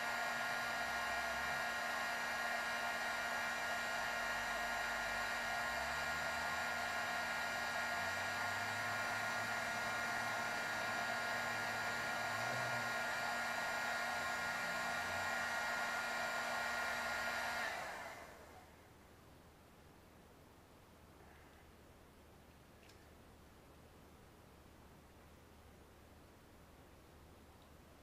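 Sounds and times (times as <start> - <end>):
heat gun blowing air with whine: 0.0 - 18.6.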